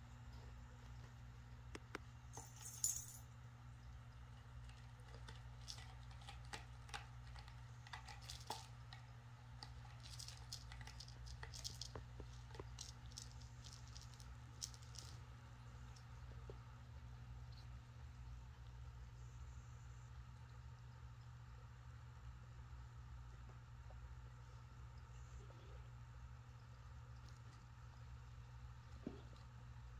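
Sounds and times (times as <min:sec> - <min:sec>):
small toy jingles: 0:02.4 - 0:03.2.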